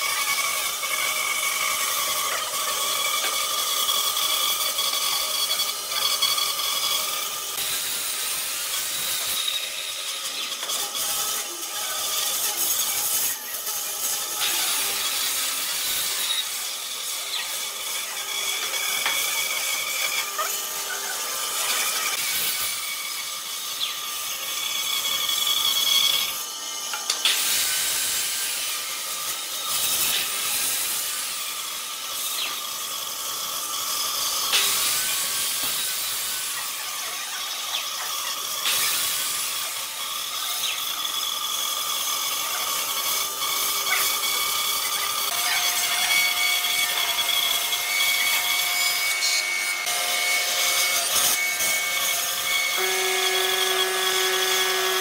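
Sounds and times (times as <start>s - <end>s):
band saw cutting wood: 0.0s - 55.0s.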